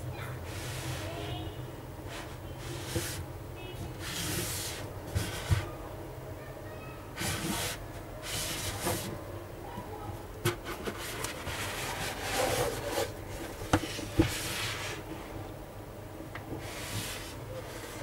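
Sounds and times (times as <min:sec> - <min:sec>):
cardboard box sliding and rubbing: 0:04.0 - 0:05.7, 0:07.2 - 0:09.1, 0:10.5 - 0:15.1, 0:16.6 - 0:18.0.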